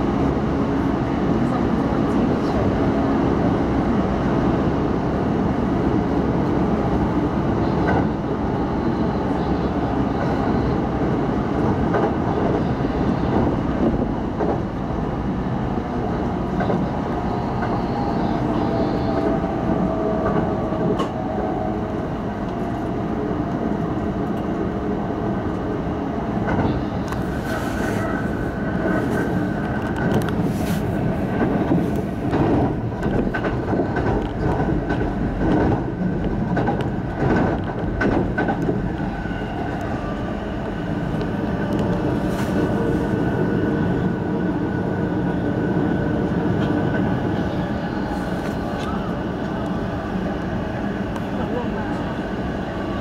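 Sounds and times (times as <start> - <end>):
train rumble: 0.0 - 53.0.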